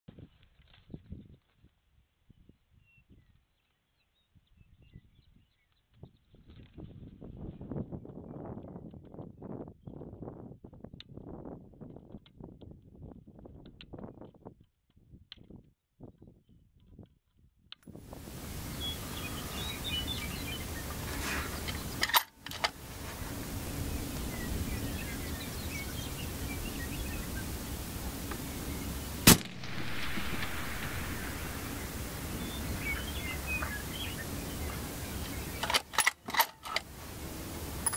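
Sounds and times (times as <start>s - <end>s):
wind buffeting microphone: 17.9s - 37.9s
birds chirping: 18.2s - 37.9s
steady low rumble: 22.7s - 37.9s
sharp clicks: 27.7s - 36.9s
loud sharp crack: 28.2s - 33.9s.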